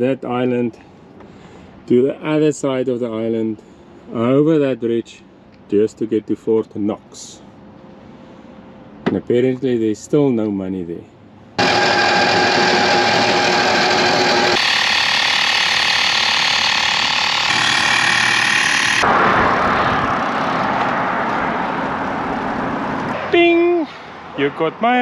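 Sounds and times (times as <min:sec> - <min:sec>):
small motor running: 0:11.6 - 0:19.0
rushing wind-like noise: 0:19.0 - 0:23.5.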